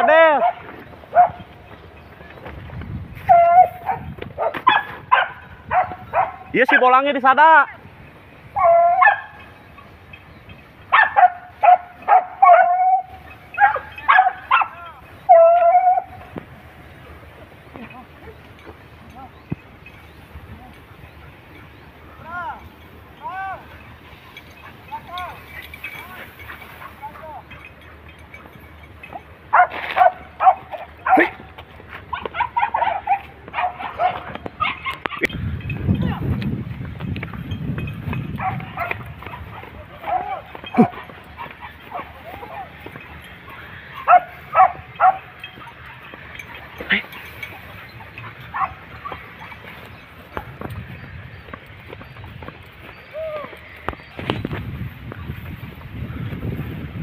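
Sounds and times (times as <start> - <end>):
dog yelping: 0.0 - 1.5, 3.2 - 6.8, 8.5 - 9.4, 10.9 - 16.3, 29.1 - 31.5, 32.1 - 35.4, 38.4 - 50.0.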